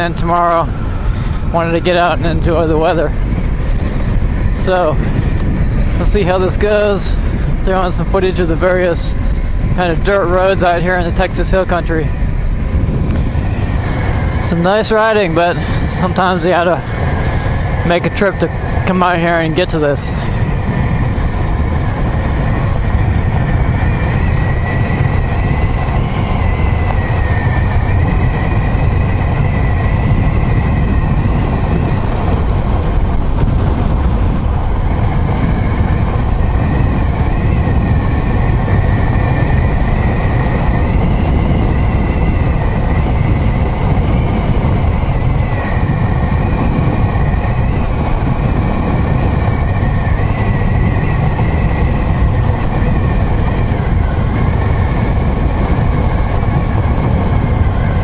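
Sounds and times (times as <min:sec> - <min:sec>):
motorcycle engine cruising: 0:00.0 - 0:58.0
thin wavering whine: 0:00.0 - 0:58.0
tyres on gravel road: 0:00.0 - 0:58.0
wind rumble: 0:00.0 - 0:58.0.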